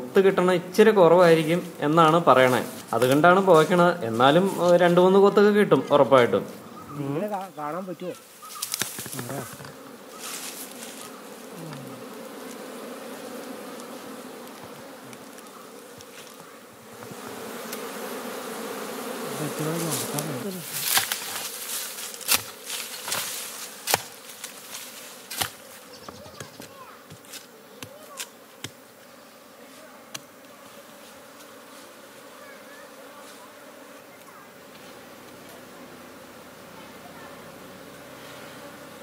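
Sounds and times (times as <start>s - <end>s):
bees buzzing: 0.0s - 39.0s
hands digging into soil: 19.6s - 25.6s.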